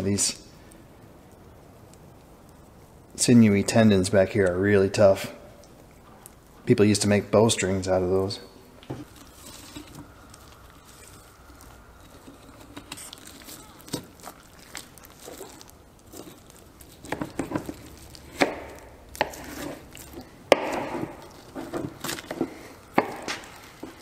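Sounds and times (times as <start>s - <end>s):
rustle of meat being handled: 8.9s - 24.0s.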